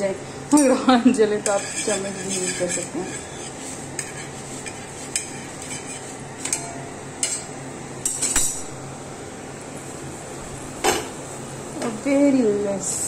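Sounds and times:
metal tongs clicking on iron pan: 0:06.4 - 0:08.5.

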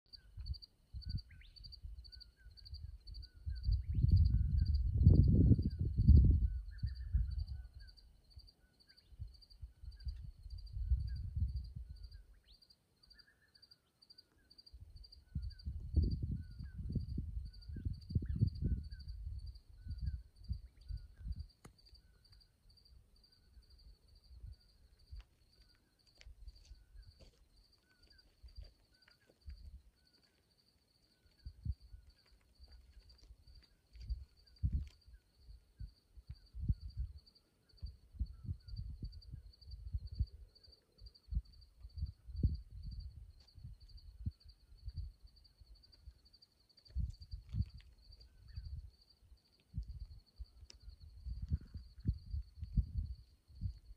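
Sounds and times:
crickets chirping: 0:00.1 - 0:53.9
low rumbling wind gusts: 0:00.2 - 0:08.4, 0:09.1 - 0:12.3, 0:14.8 - 0:25.2, 0:33.4 - 0:53.9.

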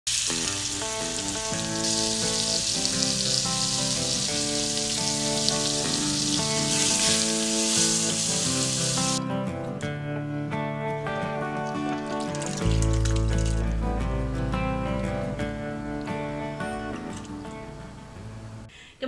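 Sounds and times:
meat sizzling in a skillet: 0:00.1 - 0:09.2
background music: 0:00.1 - 0:18.7.

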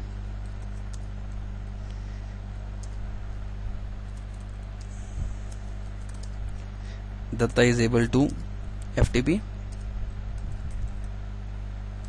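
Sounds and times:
low electrical hum: 0:00.0 - 0:12.0
keyboard keys clicking: 0:00.4 - 0:01.4, 0:02.8 - 0:03.0, 0:04.0 - 0:04.9, 0:05.5 - 0:06.6, 0:07.4 - 0:11.1.

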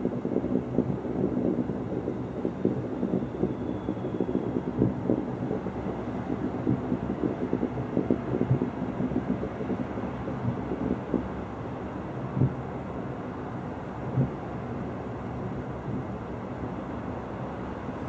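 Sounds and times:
fireworks bangs and booms: 0:00.0 - 0:11.4.

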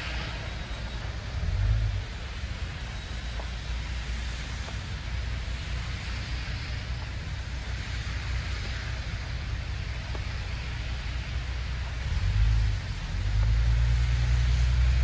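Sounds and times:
road traffic tyre hiss: 0:00.0 - 0:15.0
vehicle passing: 0:11.9 - 0:15.0.

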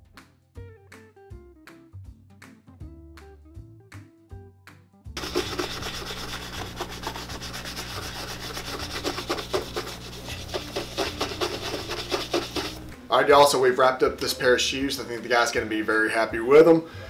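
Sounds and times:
shoe brush scratching leather: 0:05.2 - 0:12.9.

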